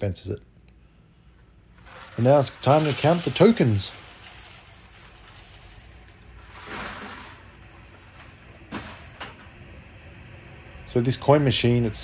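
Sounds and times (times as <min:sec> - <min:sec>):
coins clattering: 0:01.7 - 0:09.4
coins sliding and rattling: 0:01.7 - 0:09.4.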